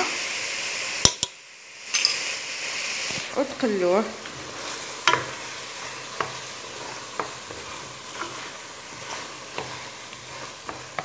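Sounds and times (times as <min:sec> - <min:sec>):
food sizzling in a pot: 0:00.0 - 0:11.0
wooden spoon scraping a pot: 0:04.2 - 0:11.0.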